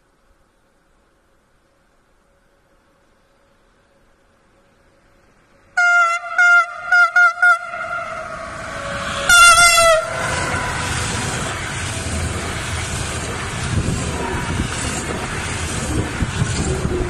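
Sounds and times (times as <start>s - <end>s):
freight train passing: 1.2s - 17.0s
locomotive horn: 5.8s - 11.6s.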